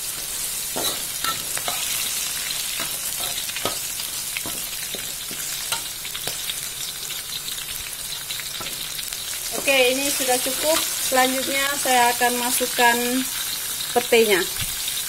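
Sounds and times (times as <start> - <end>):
vegetables sizzling in hot oil: 0.0 - 15.0
metal spatula scraping a wok: 0.1 - 6.4.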